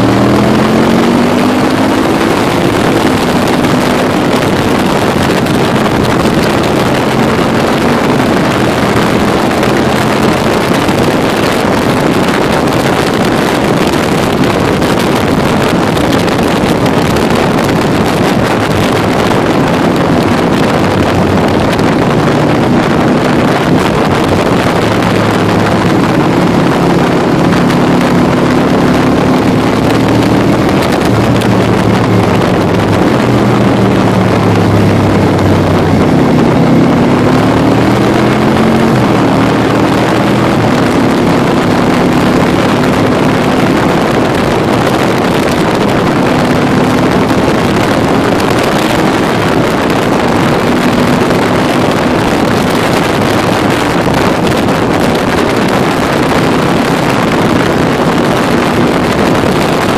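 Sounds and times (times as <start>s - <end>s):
motorcycle engine running: 0.0s - 59.9s
wind rushing over microphone: 0.0s - 59.9s.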